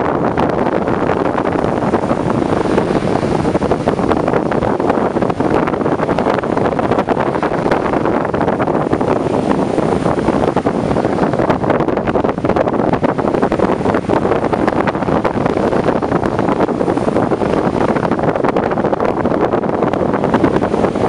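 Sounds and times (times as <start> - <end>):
strong wind on microphone: 0.0 - 21.0
surf: 0.0 - 21.0.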